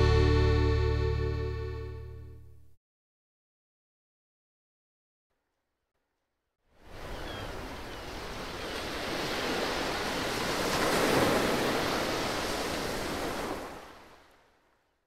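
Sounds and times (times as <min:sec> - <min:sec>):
ocean surf washing in: 0:06.8 - 0:14.2.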